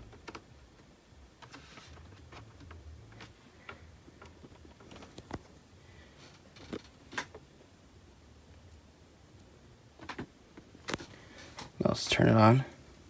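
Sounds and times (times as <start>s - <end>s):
hands handling a laptop: 1.4s - 5.6s.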